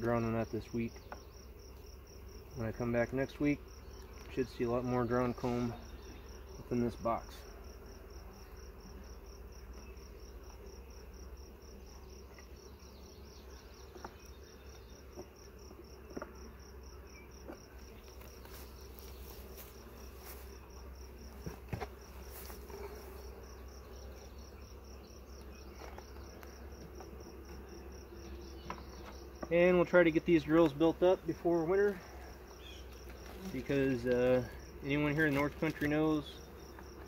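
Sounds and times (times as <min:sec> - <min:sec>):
bees buzzing faintly: 0:00.0 - 0:37.0.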